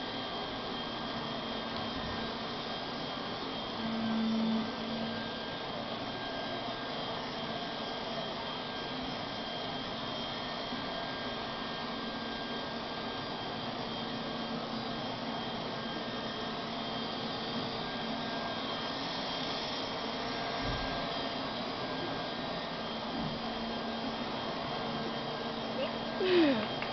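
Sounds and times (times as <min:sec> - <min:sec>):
leaf blower running: 0:10.7 - 0:26.9.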